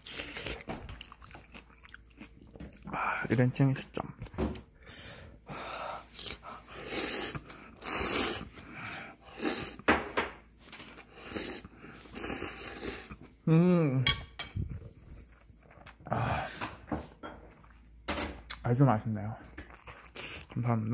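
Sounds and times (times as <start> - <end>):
person slurping and chewing noodles: 0.0 - 3.2, 5.9 - 9.9, 10.8 - 13.4, 14.7 - 16.9, 19.4 - 20.9
person humming mmm: 13.4 - 14.1.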